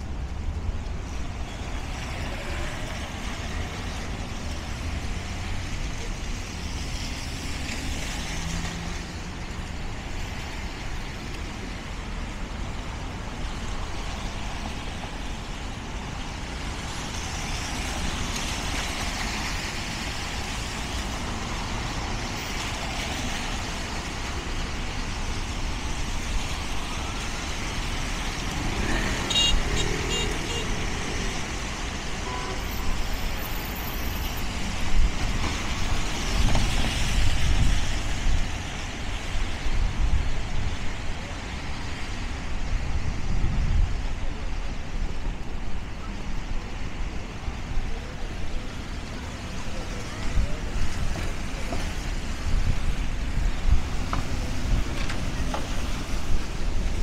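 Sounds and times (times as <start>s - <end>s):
tyres hissing on wet pavement: 0.0s - 57.0s
vehicle engines rumbling: 0.0s - 57.0s.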